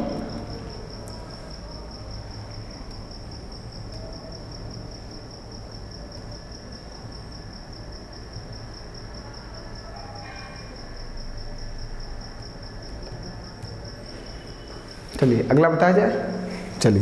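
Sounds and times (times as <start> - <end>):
cricket chirping: 0.0 - 17.0
low steady hum: 0.0 - 17.0.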